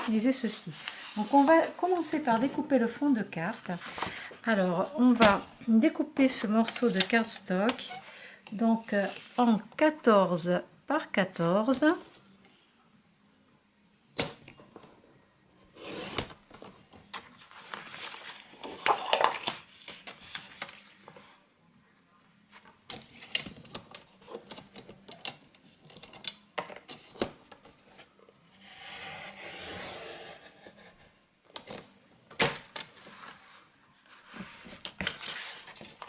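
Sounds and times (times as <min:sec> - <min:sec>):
paper rubbing and sliding: 0:08.8 - 0:09.6, 0:17.4 - 0:21.3.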